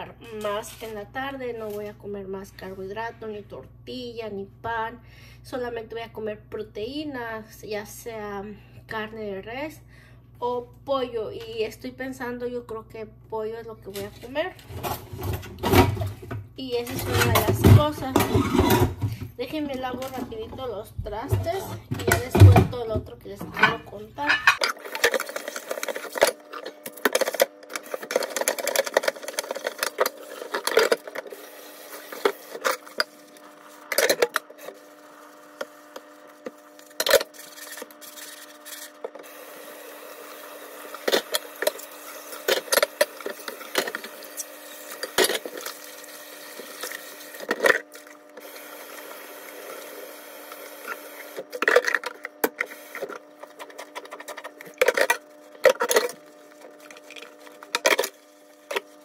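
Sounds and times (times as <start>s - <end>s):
dishes clinking in sink: 23.4s - 24.8s
running tap water: 27.8s - 51.5s.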